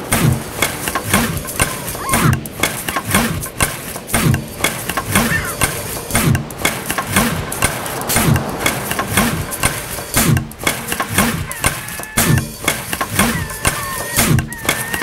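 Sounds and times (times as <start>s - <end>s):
machine running with swooping pulse: 0.0s - 15.0s
sharp clicks: 0.0s - 15.0s.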